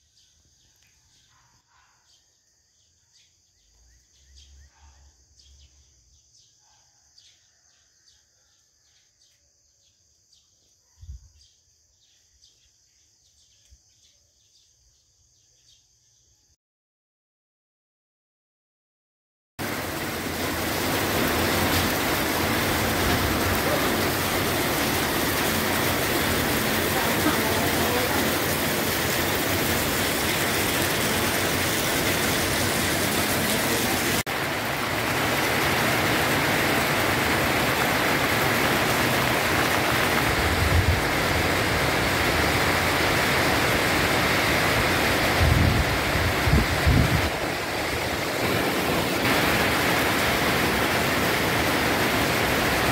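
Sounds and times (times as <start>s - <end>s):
heavy rain pouring: 19.6s - 52.9s.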